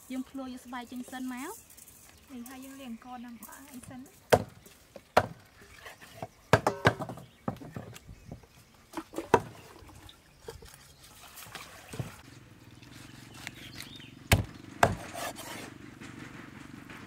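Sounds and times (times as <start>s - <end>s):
cleaver chopping on wooden block: 4.3s - 5.4s, 6.5s - 8.0s, 14.3s - 15.6s.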